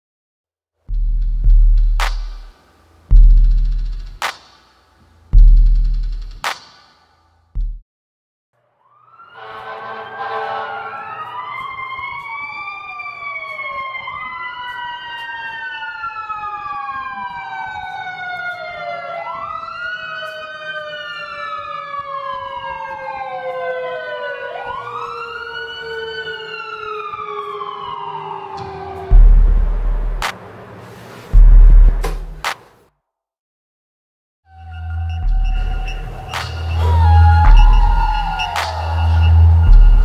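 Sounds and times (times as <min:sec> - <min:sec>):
emergency sirens wailing: 0:08.7 - 0:30.9, 0:34.5 - 0:40.0.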